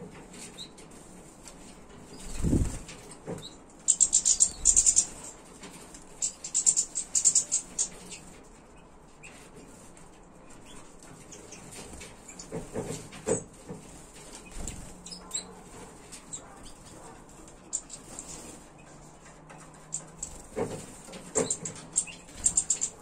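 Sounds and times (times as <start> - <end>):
finches twittering: 3.4 - 5.4, 6.2 - 8.3, 16.2 - 23.0.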